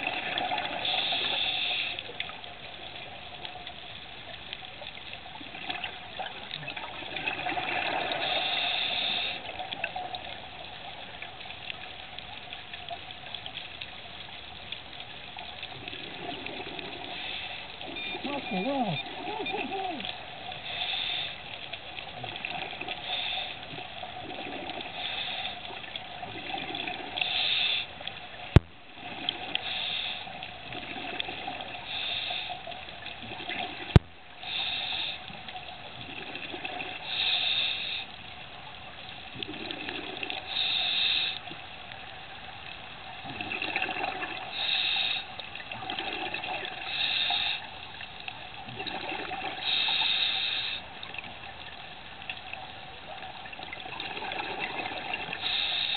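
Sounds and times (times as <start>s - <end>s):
diver breathing through regulator: 0.8s - 2.1s, 8.0s - 9.5s, 20.6s - 21.5s, 22.9s - 23.7s, 24.8s - 25.6s, 29.6s - 30.3s, 31.8s - 32.7s, 34.4s - 35.3s, 37.0s - 38.1s, 40.4s - 41.5s, 44.5s - 45.3s, 46.8s - 47.8s, 49.6s - 50.9s, 55.3s - 55.9s.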